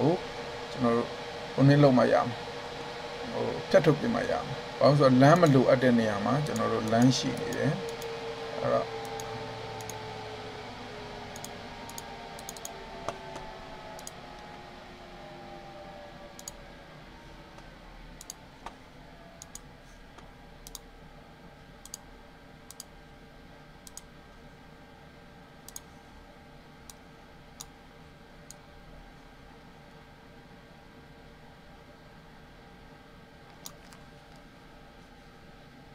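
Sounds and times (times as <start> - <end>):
faint steady hum: 0.0 - 35.9
computer mouse clicks: 6.4 - 8.1, 9.0 - 10.0, 11.3 - 14.2, 16.4 - 16.6, 18.2 - 18.8, 19.4 - 20.9, 21.8 - 22.0, 22.7 - 22.9, 23.8 - 24.1, 25.7 - 25.9, 33.5 - 34.0.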